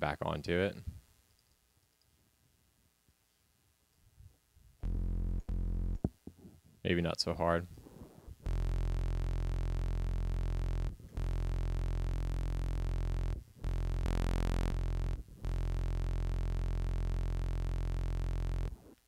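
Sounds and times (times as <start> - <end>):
low saturated synthesizer note: 4.8 - 6.1, 7.8 - 18.9.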